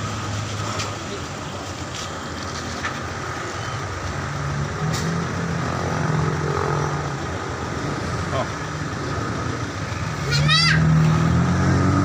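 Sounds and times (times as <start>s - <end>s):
truck diesel engine revving: 3.8s - 12.0s.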